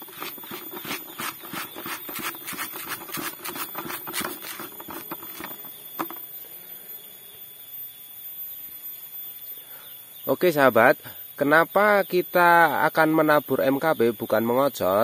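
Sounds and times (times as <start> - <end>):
granules rattling in a bucket: 0.0 - 6.2.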